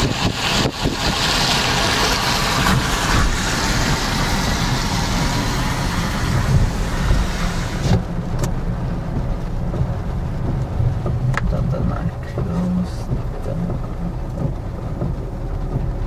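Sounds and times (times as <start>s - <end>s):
loud hiss: 0.0s - 8.0s
car engine and tyres rumbling: 0.0s - 16.0s.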